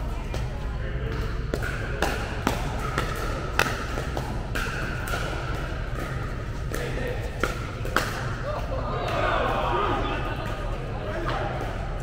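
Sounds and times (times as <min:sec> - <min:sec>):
paddles hitting plastic ball: 0:01.1 - 0:09.2.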